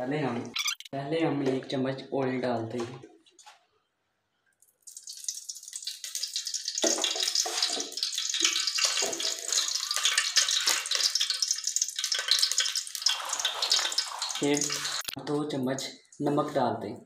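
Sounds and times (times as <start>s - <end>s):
oil sizzling and crackling: 4.6s - 15.2s.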